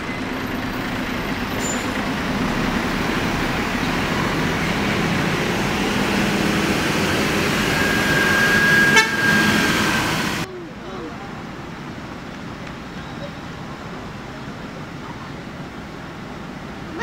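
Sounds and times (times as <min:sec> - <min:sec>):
diesel bus engines: 0:00.0 - 0:17.0
low engine hum: 0:00.0 - 0:17.0
thin high whine: 0:03.2 - 0:10.4.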